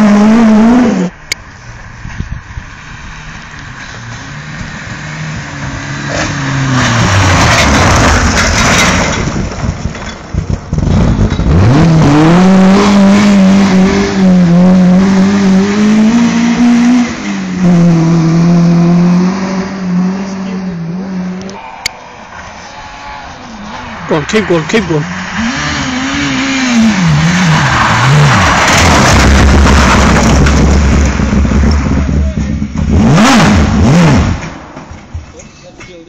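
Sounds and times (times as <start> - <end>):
car engine revving high: 0.0 - 1.2, 10.8 - 34.6
rally car passing: 0.0 - 9.6, 10.7 - 35.0.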